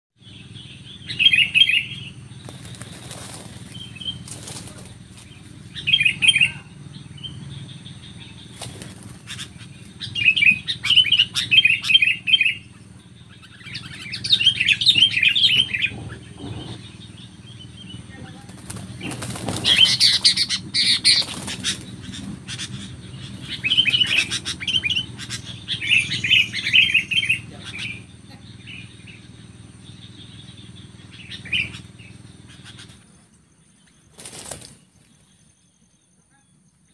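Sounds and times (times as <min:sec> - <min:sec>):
birds harsh chattering calls: 0:00.2 - 0:36.9
wing flutters: 0:01.7 - 0:06.2, 0:08.4 - 0:17.2, 0:18.1 - 0:28.0, 0:31.2 - 0:33.2, 0:33.9 - 0:35.4.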